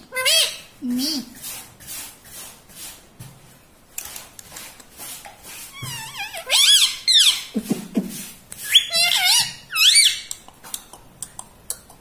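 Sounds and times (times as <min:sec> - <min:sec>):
parakeet squawking calls: 0:05.8 - 0:07.5, 0:08.7 - 0:10.3.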